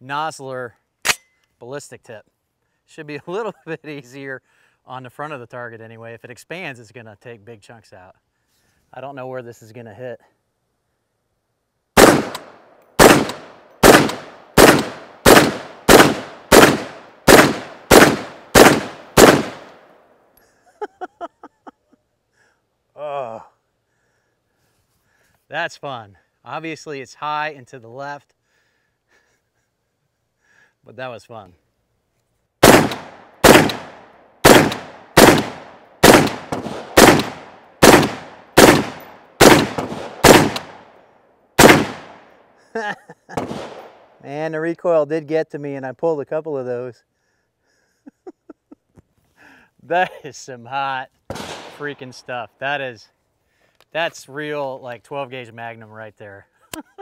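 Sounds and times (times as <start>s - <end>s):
rifle gunshots: 12.0s - 19.9s, 32.6s - 41.0s, 41.6s - 42.3s, 43.4s - 44.0s, 51.3s - 52.0s.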